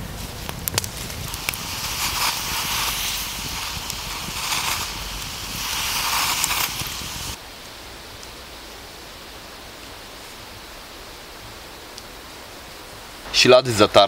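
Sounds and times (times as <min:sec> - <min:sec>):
rushing hiss: 0:00.0 - 0:07.4
campfire crackling: 0:00.0 - 0:14.0.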